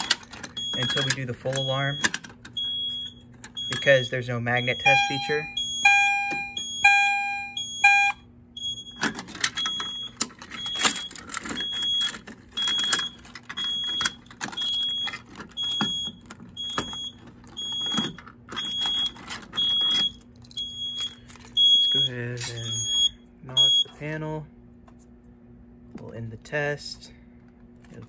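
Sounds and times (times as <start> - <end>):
pull station clicking and jangling: 0.0 - 2.6, 9.0 - 21.6
fire alarm beeping: 0.0 - 24.0.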